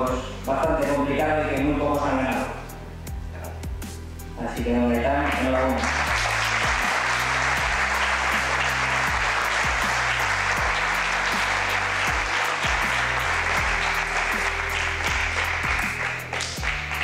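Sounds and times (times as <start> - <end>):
background music with steady beat: 0.0 - 17.0
audience applauding: 5.2 - 17.0.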